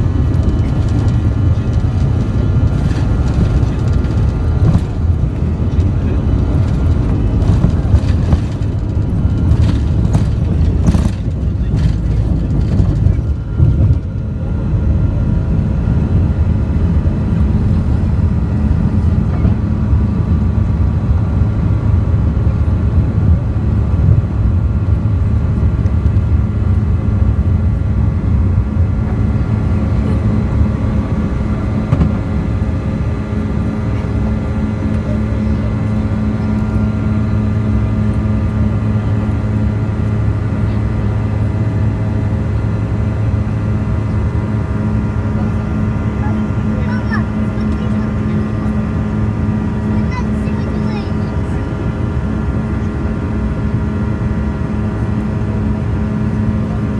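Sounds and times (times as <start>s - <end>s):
jet engine low rumble: 0.0s - 56.9s
jet engine whine: 0.0s - 56.9s.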